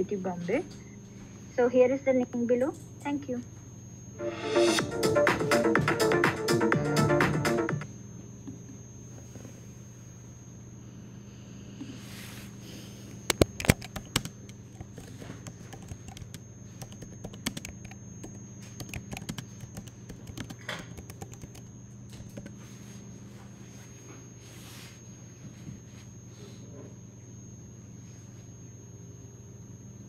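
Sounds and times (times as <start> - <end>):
steady low hum: 0.0 - 30.0
keyboard typing: 13.3 - 22.5.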